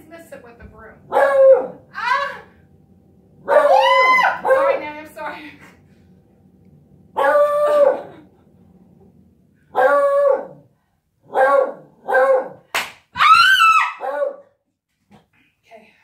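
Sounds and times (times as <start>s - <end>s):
dog howling and baying: 1.1s - 2.2s, 3.4s - 4.8s, 7.2s - 8.2s, 13.2s - 14.4s.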